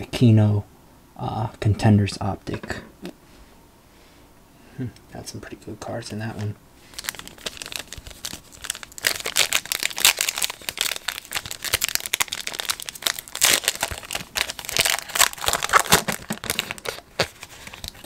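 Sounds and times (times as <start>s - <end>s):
foil wrapper crinkling and tearing: 6.9s - 18.0s.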